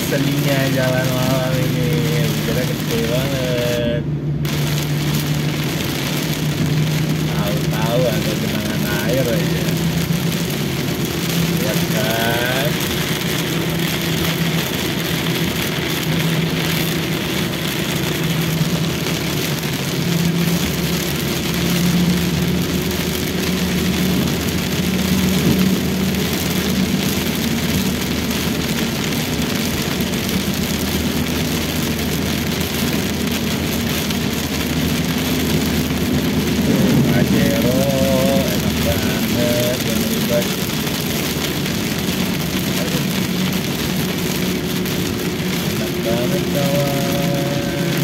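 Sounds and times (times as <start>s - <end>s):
low engine hum: 0.0s - 48.0s
rain on a car: 0.0s - 48.0s
tyres on wet road: 0.0s - 48.0s.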